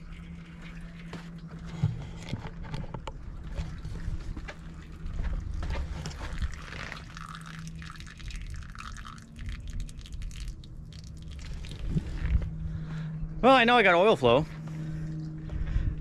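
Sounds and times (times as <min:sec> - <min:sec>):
steady low hum: 0:00.0 - 0:16.0
ticks and drips: 0:03.5 - 0:12.0.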